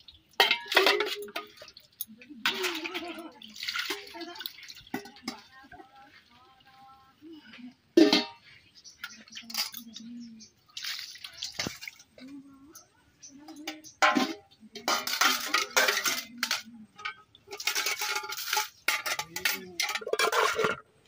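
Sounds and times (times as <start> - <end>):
metal dishes clattering and scraping: 0.4 - 5.9, 8.0 - 10.3, 13.4 - 21.0.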